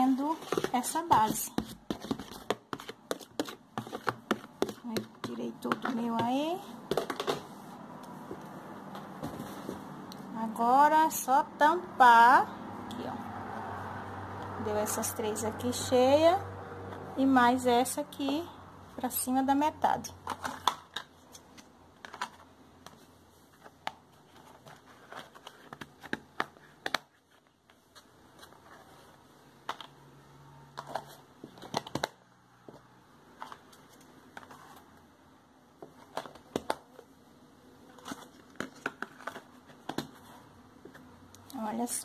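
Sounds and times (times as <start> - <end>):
plastic lids snapping onto tubs: 0.4 - 7.5.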